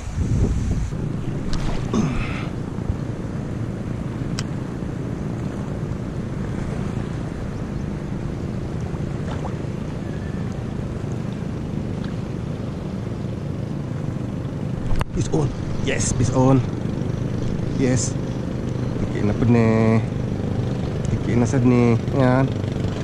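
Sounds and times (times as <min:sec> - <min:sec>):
wind noise on microphone: 0:00.0 - 0:07.6
sea water lapping at shore: 0:00.0 - 0:15.8.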